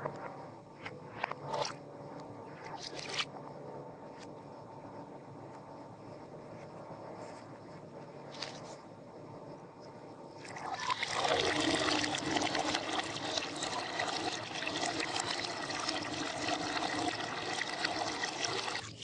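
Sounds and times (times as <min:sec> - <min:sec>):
water pouring into a bowl: 0:10.4 - 0:19.0.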